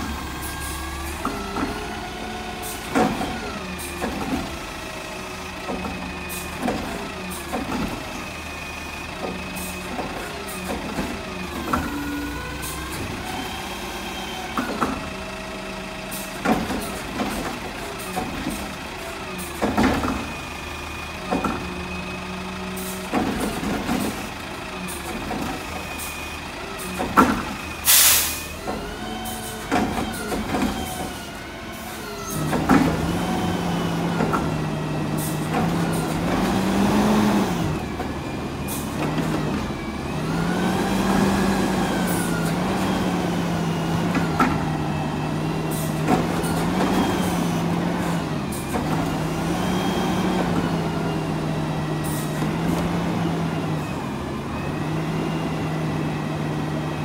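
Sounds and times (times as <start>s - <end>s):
diesel engine idling: 0.0s - 57.0s
hydraulics running: 0.0s - 57.0s
clunks and knocks: 1.1s - 2.0s, 2.8s - 4.6s, 5.5s - 8.2s, 9.2s - 12.2s, 14.5s - 15.2s, 16.4s - 18.8s, 19.4s - 20.4s, 21.2s - 22.0s, 23.0s - 24.4s, 25.0s - 25.9s, 26.9s - 27.7s, 29.6s - 31.4s, 32.3s - 33.2s, 33.9s - 39.8s, 43.9s - 45.0s, 45.8s - 49.5s
air hiss: 27.9s - 28.4s.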